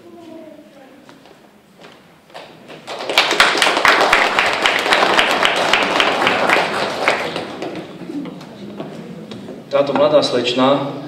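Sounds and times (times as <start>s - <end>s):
audience applauding: 2.7s - 8.0s.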